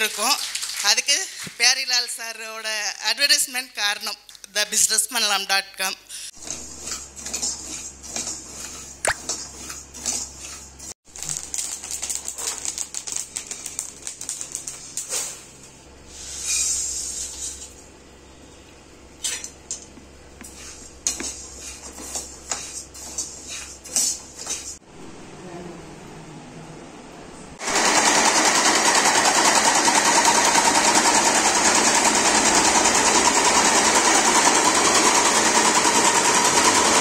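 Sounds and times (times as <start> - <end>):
low hum: 24.8 - 27.6.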